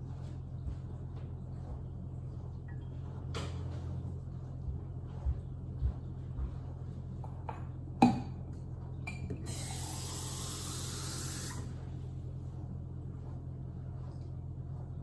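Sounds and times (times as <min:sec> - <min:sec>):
water running from faucet: 0:09.5 - 0:11.7.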